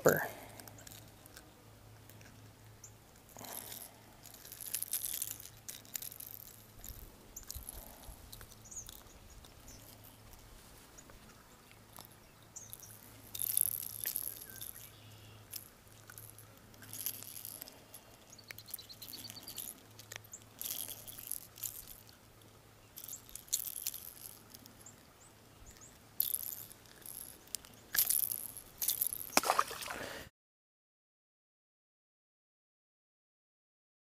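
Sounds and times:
crisp rattling and rustling: 3.2s - 22.2s, 22.9s - 25.1s, 25.7s - 29.4s.

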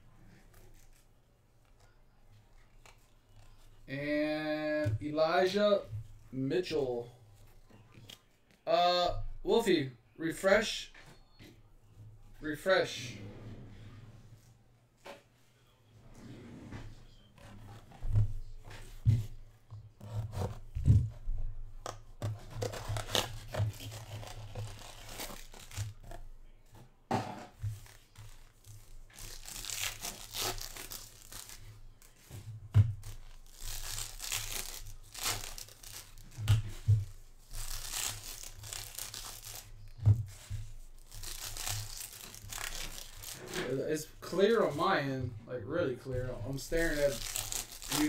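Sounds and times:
wrappers crinkling: 22.4s - 26.4s, 27.7s - 32.3s, 32.9s - 45.2s, 46.0s - 48.0s
foil packs ripping: 22.5s - 26.2s, 27.8s - 32.3s, 33.0s - 36.8s, 37.4s - 44.7s, 46.5s - 48.0s.

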